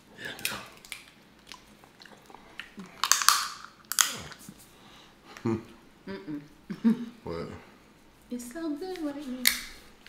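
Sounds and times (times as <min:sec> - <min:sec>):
crab shells cracking: 0:00.2 - 0:01.7, 0:02.6 - 0:04.4
close-up chewing: 0:00.2 - 0:04.6.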